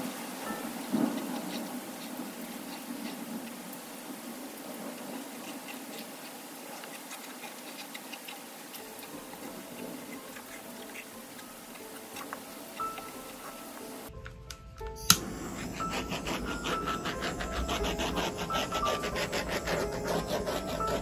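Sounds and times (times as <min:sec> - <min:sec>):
steady rain: 0:00.0 - 0:14.4
held musical tones: 0:08.8 - 0:21.0.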